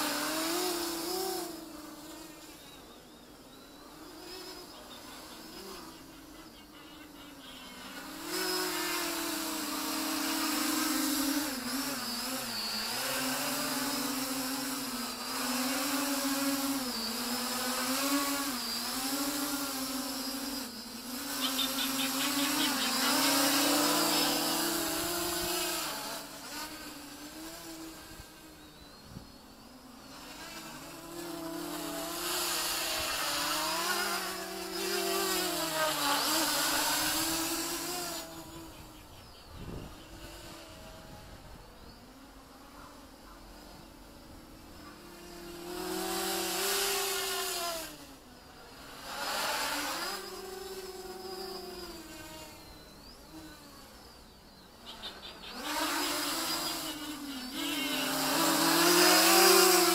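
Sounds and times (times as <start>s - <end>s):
quadcopter propellers whirring: 0.0s - 59.9s.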